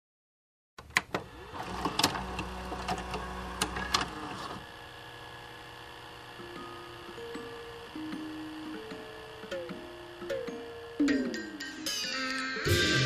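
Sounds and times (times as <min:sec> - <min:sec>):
tape hiss and hum: 0:00.8 - 0:13.0
low motor whir: 0:01.2 - 0:11.6
plucked guitar notes: 0:08.0 - 0:13.0.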